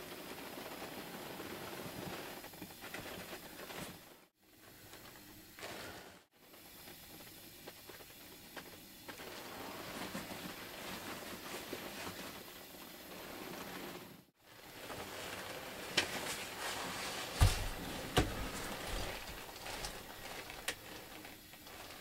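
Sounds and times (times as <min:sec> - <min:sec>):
faint rustling: 0:07.6 - 0:22.0.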